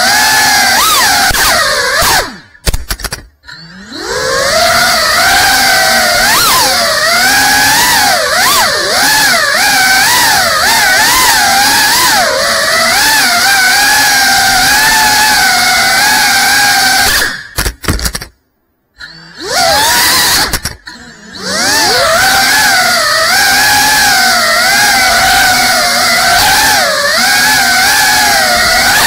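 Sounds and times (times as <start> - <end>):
drone motors whining: 0.0 - 29.0.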